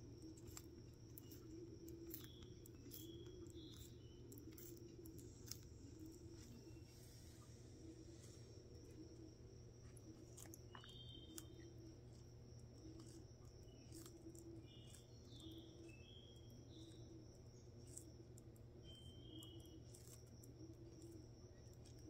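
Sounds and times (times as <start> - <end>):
low hum: 0.0 - 17.6
tortoise crunching lettuce: 0.0 - 22.0
faint high chirps: 0.1 - 18.0, 18.8 - 20.2.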